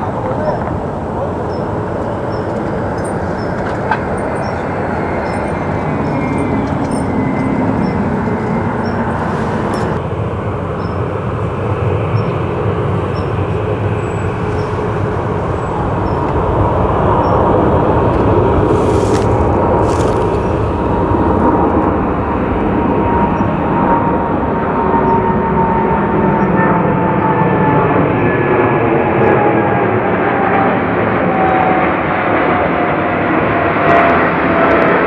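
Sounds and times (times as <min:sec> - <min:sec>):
jet engines rumbling and whining: 0:00.0 - 0:35.0.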